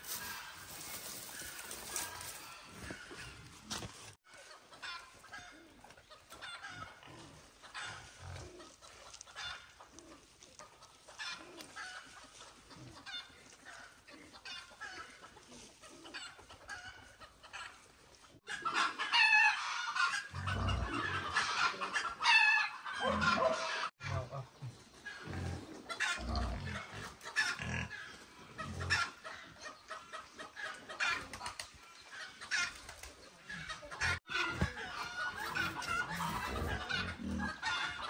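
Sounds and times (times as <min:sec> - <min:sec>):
chickens clucking and calling: 0:00.0 - 0:38.0.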